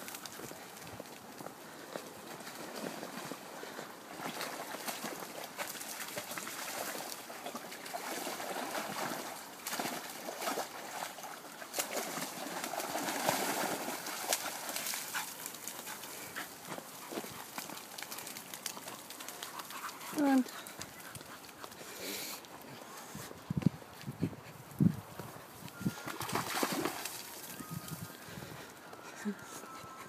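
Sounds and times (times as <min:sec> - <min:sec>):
dog splashing through water: 0:04.1 - 0:21.5, 0:26.0 - 0:27.5.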